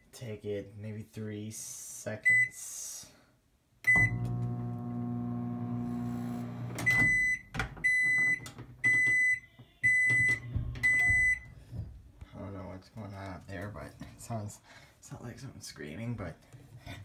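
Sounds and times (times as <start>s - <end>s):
microwave click: 3.9s - 5.8s
microwave running hum: 3.9s - 7.2s
microwave beeps: 3.9s - 11.4s.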